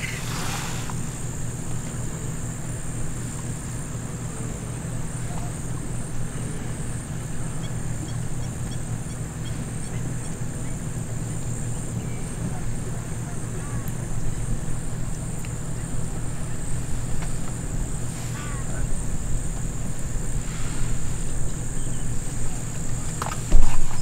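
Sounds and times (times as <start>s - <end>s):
high-pitched insect drone: 0.0s - 24.0s
vehicle engine idling: 0.0s - 24.0s
bird chirping: 3.7s - 17.8s, 21.0s - 23.0s.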